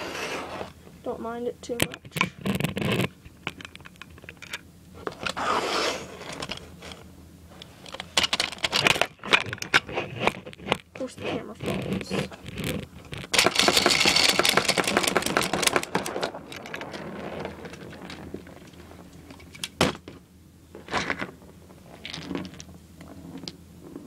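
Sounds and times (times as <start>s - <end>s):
rubbing and rattling on microphone: 1.7s - 4.3s, 7.7s - 19.6s, 20.7s - 24.0s
plastic parts knocking on plastic lid: 13.3s - 16.1s.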